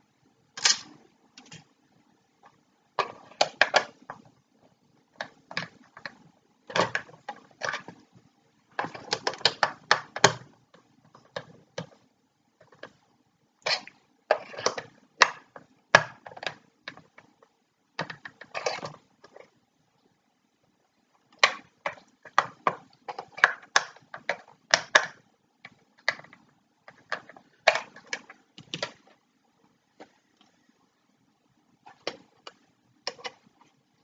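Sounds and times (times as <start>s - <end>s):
clicks and taps of small parts: 21.4s - 29.2s.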